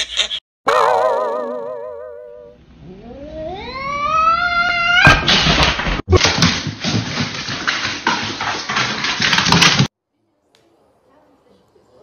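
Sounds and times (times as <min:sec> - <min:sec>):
cat yowling: 0:00.8 - 0:05.2.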